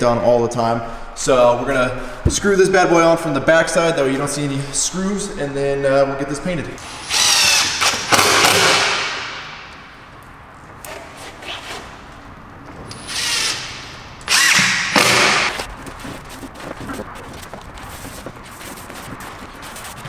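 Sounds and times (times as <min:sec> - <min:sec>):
cordless drill driving screws: 0:06.8 - 0:08.8, 0:12.9 - 0:15.5.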